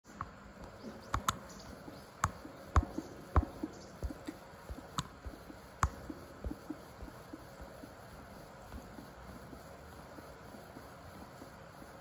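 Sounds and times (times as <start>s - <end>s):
sharp clicks and knocks: 0.2s - 7.7s.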